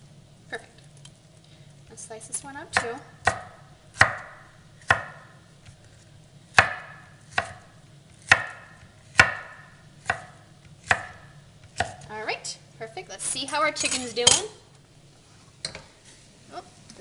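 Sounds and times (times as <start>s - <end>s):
knife chopping on wooden board: 2.7s - 12.1s.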